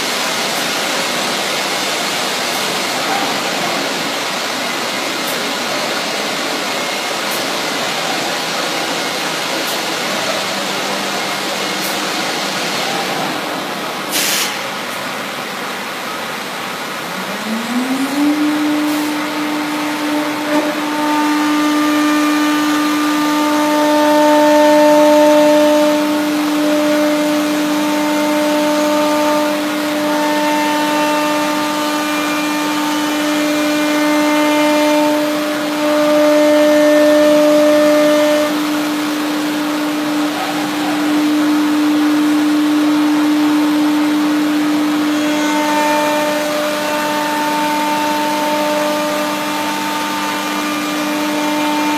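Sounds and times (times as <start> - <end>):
higher machine tones: 0.0 - 51.9
router spindle whining: 16.0 - 51.9.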